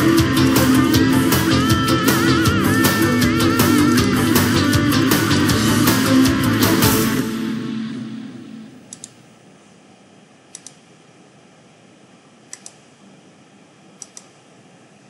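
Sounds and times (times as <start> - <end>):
background music: 0.0 - 8.8
computer mouse double-clicking: 10.5 - 10.8, 12.5 - 12.8, 14.0 - 14.4.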